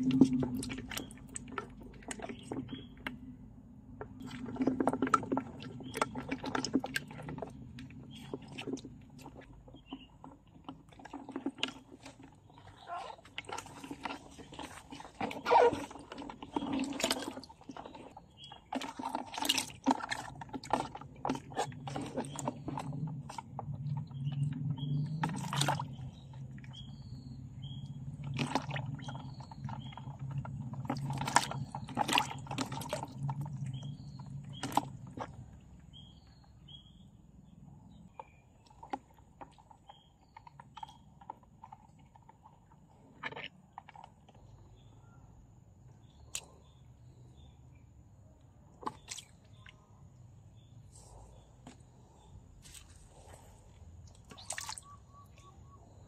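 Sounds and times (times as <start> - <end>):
small splashes: 0.0 - 3.3, 3.9 - 36.1, 48.7 - 50.0, 52.6 - 55.5.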